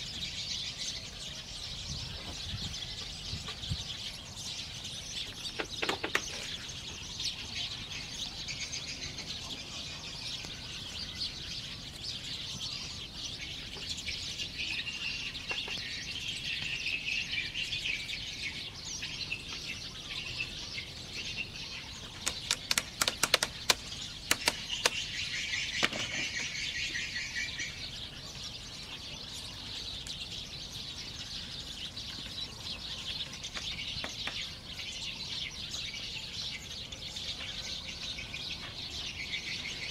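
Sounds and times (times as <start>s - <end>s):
birds chirping: 0.0s - 39.9s
bamboo knocking: 22.2s - 25.0s.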